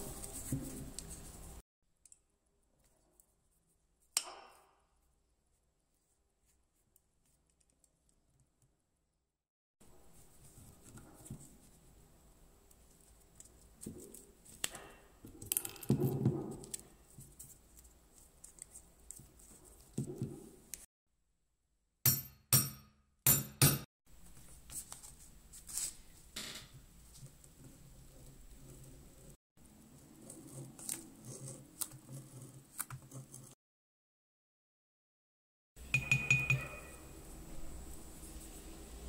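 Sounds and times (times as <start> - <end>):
metal strikes on setting tool: 22.1 - 23.9.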